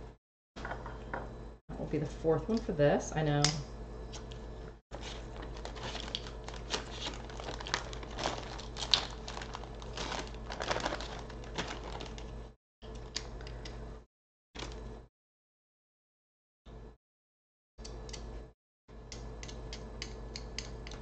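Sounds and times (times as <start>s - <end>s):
plastic bag crinkling: 5.0s - 12.5s.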